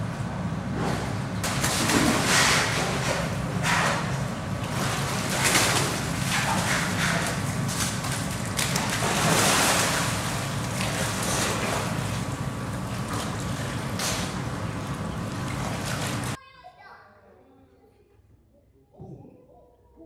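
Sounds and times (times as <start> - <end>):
bears splashing into pool: 1.4 - 16.4
rushing water: 8.4 - 16.4.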